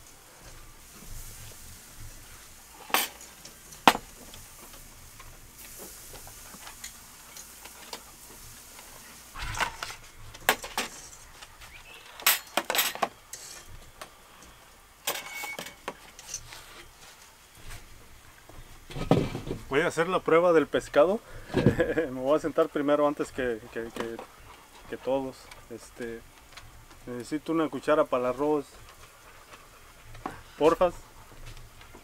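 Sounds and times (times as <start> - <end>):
tableware clinking on glass table: 2.8 - 4.0, 12.2 - 13.7, 15.1 - 15.9.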